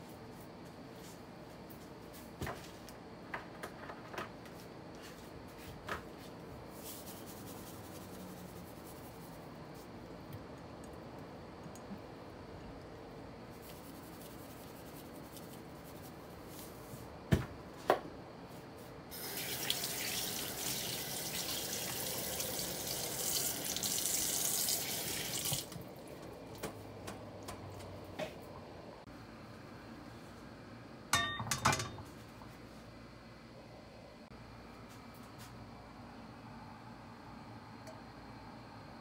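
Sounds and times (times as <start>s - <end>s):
water running from tap: 19.1s - 26.2s.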